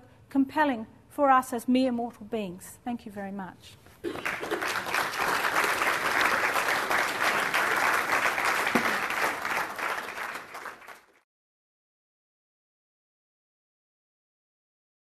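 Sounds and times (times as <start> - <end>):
audience applauding: 4.0 - 11.2.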